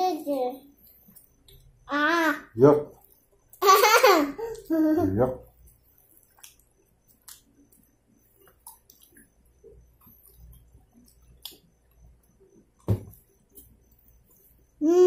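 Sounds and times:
chewing fries: 0:05.6 - 0:14.5.

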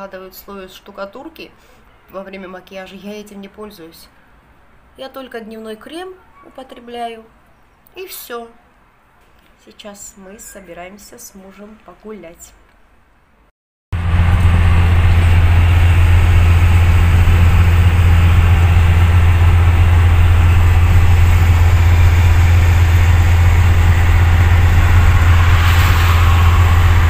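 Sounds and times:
bus engine and road noise: 0:14.0 - 0:27.0
hiss: 0:23.7 - 0:27.0.

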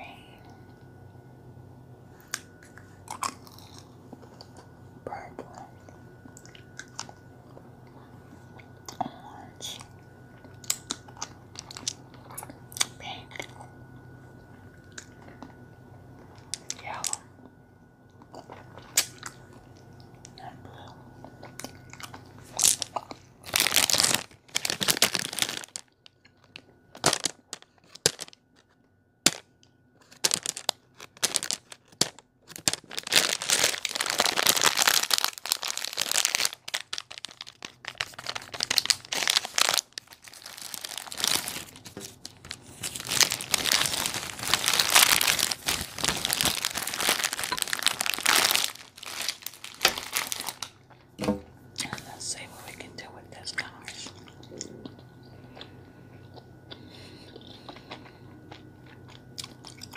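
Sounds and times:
plastic packet crinkling: 0:10.6 - 0:12.0, 0:21.6 - 0:28.6, 0:30.0 - 0:50.8.

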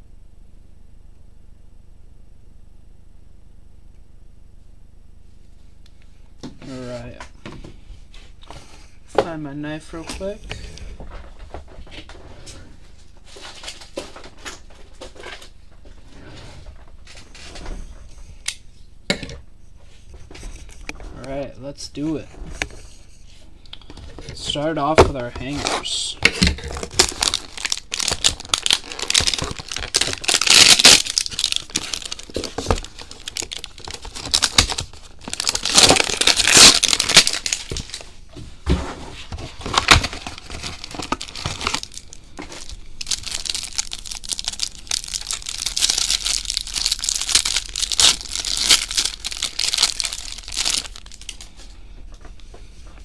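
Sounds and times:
shrink wrap crinkling and tearing: 0:25.2 - 0:38.2, 0:39.4 - 0:51.7.

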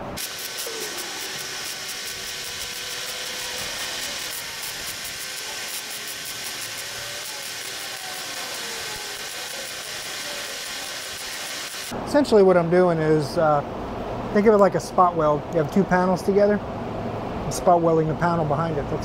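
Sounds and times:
welder arc crackling and sizzling: 0:00.0 - 0:12.0.

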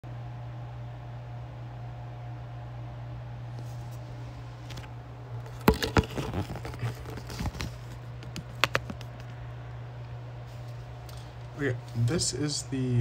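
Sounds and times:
clicks knocks and rustles on desk: 0:04.7 - 0:09.4.

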